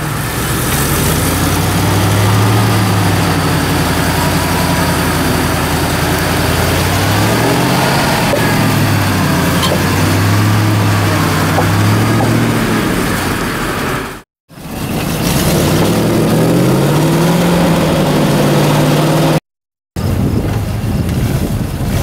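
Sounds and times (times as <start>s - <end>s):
truck engine running at low revs: 0.0s - 19.4s, 20.0s - 22.0s.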